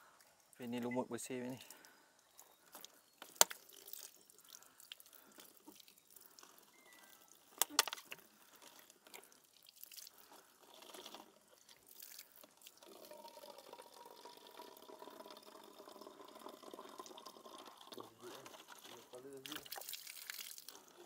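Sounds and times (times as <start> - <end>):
faint steady tone: 0.0 - 19.7
water trickling into plastic bottle: 0.0 - 21.0
small drip ticks: 0.1 - 21.0.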